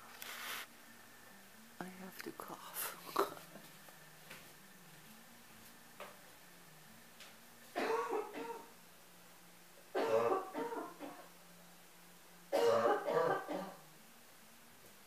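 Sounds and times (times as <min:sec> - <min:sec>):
person coughing: 0:07.8 - 0:08.7, 0:10.0 - 0:11.2, 0:12.6 - 0:13.8.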